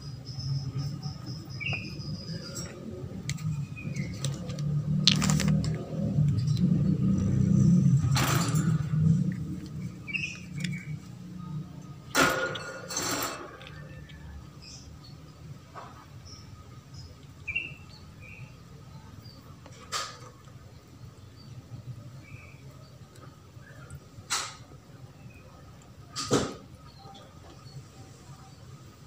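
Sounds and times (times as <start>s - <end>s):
low rough rumble: 0.8s - 12.1s.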